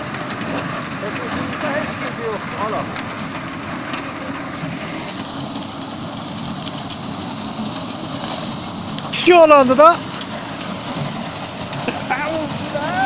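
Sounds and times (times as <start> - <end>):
stalks rustling and crackling: 0.0 - 13.0
tractor and reaper mechanical din: 0.0 - 13.0.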